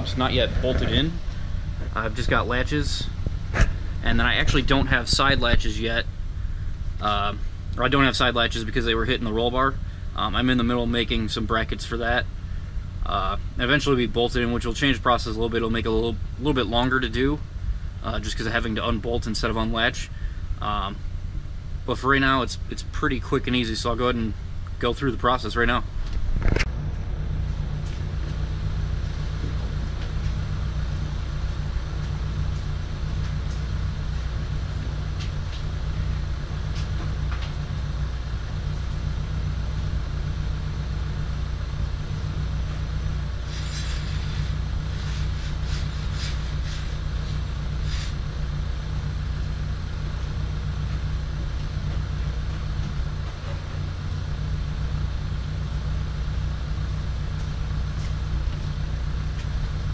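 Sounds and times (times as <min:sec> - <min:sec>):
low mechanical hum: 0:00.0 - 0:59.9
sharp clicks and knocks: 0:26.0 - 0:26.8.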